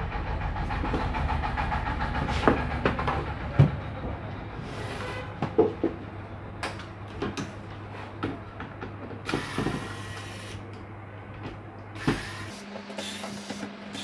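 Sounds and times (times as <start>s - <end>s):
electric screwdriver running: 9.3s - 10.6s, 12.0s - 14.0s.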